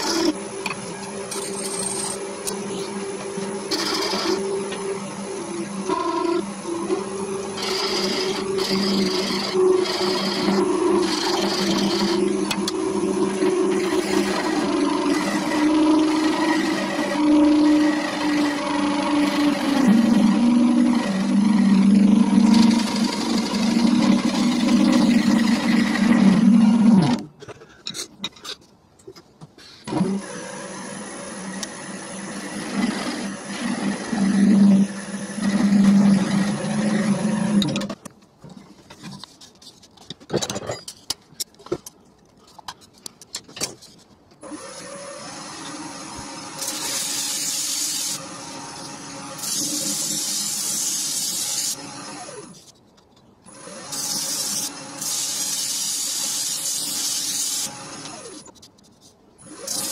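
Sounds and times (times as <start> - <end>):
wood lathe humming: 0.0 - 27.2, 29.9 - 37.8.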